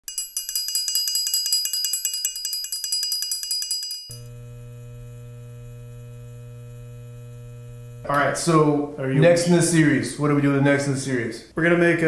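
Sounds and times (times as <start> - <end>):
tinkling bell-like chimes: 0.0 - 4.2
electrical hum: 4.2 - 10.5.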